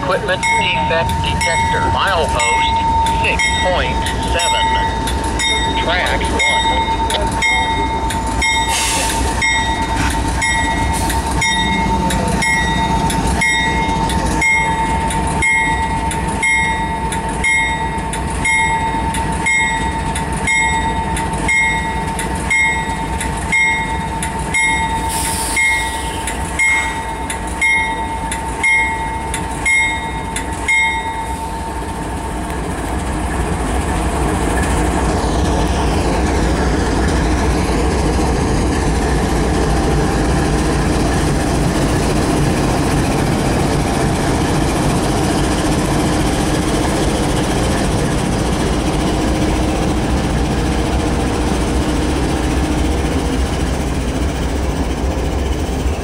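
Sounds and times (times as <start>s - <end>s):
steady whine: 0.0s - 8.5s
locomotive bell ringing: 0.0s - 32.0s
diesel locomotive rumble: 0.0s - 56.0s.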